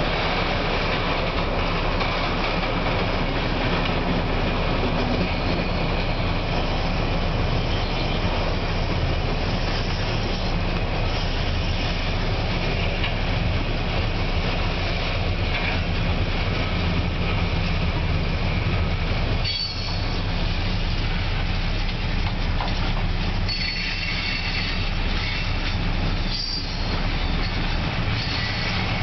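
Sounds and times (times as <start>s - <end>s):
freight train wheels rumbling: 0.0s - 29.0s
wheel squeal: 19.4s - 20.2s, 23.4s - 29.0s.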